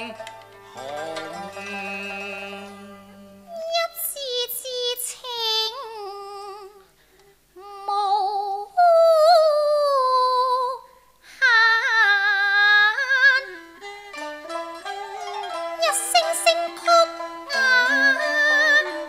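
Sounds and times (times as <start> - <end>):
woman singing opera with vibrato: 3.4 - 7.0, 7.6 - 13.8, 15.8 - 19.0.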